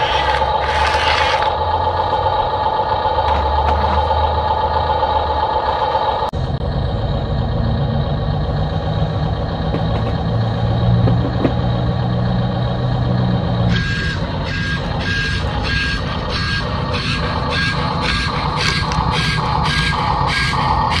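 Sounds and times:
toy vehicle motor drone: 0.0s - 2.3s, 13.7s - 21.0s.

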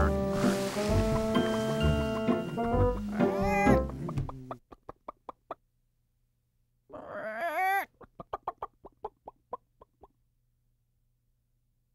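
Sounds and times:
chicken clucking: 1.1s - 5.6s, 6.9s - 10.2s
chicken squawking: 3.0s - 5.5s, 6.9s - 9.4s.

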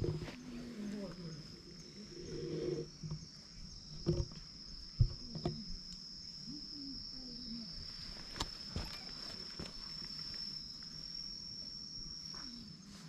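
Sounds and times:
insects droning: 0.0s - 13.0s
knocks and rubbing on camera: 4.0s - 4.4s.

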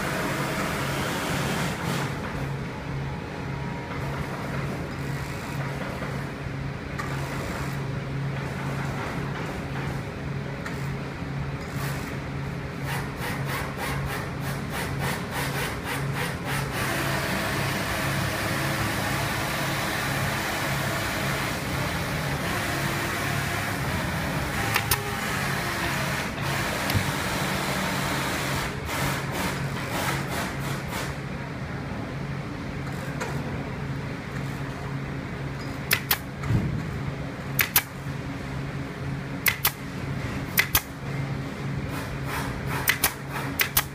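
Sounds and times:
steady machine hum: 0.0s - 43.9s
pneumatic staple gun firing: 24.6s - 25.6s, 35.9s - 36.3s, 37.6s - 37.9s, 39.4s - 39.8s, 40.5s - 40.9s, 42.3s - 43.9s.

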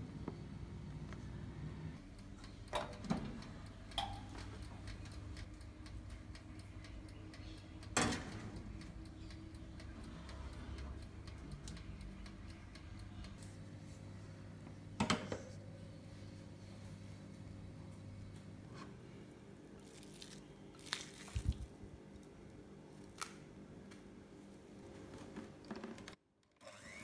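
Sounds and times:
mechanical timer ticking: 2.0s - 13.4s.

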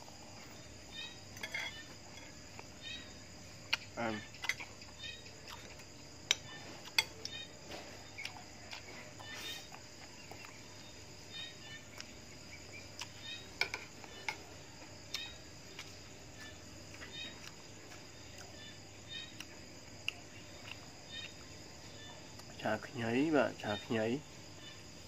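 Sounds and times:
night insects chirping: 0.0s - 25.0s
cutlery clinking on plates: 1.4s - 2.4s.

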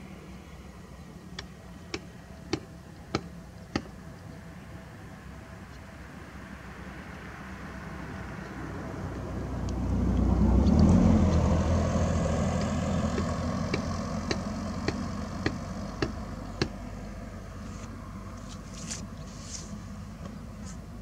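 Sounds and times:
engine passing: 5.3s - 20.1s.

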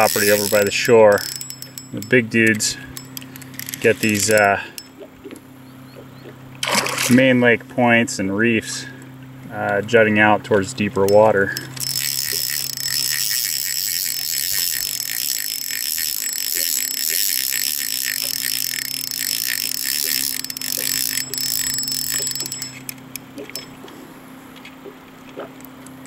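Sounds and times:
fishing reel ticking whir: 0.0s - 5.1s, 10.6s - 23.9s.

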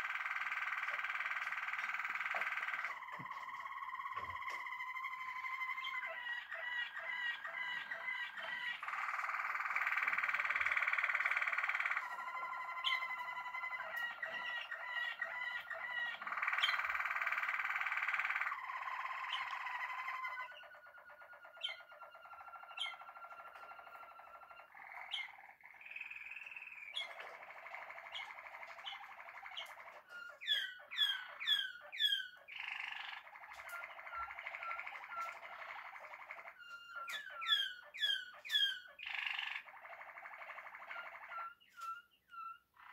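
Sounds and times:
loud sweeping bird notes: 0.0s - 29.7s
canaries singing: 0.0s - 42.9s.

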